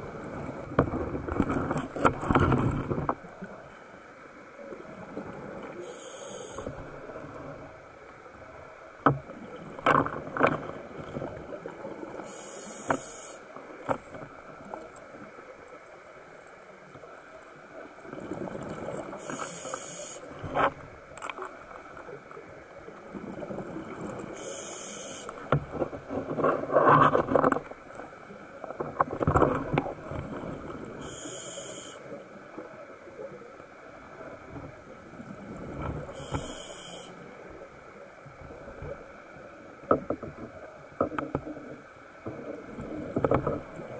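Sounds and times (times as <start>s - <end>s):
regulator breathing hiss: 5.8s - 6.8s, 12.2s - 13.5s, 19.2s - 20.3s, 24.3s - 25.4s, 31.0s - 32.2s, 36.1s - 37.3s.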